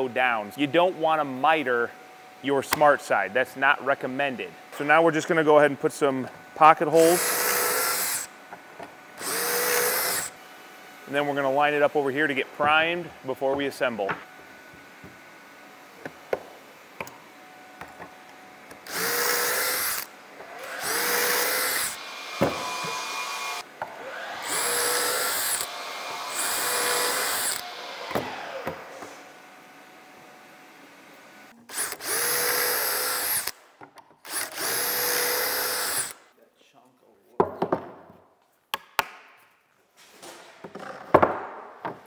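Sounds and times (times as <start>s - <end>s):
cordless drill boring holes: 6.9s - 8.3s, 9.2s - 10.4s, 18.8s - 28.7s, 31.7s - 33.6s, 34.2s - 36.2s.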